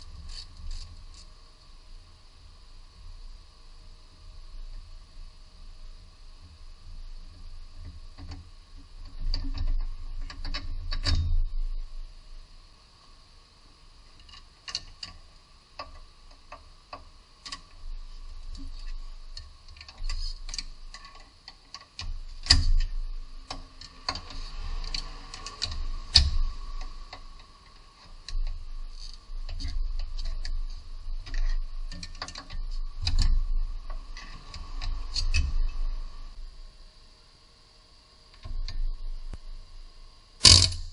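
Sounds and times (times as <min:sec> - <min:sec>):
faint steady hum: 0:00.0 - 0:40.9.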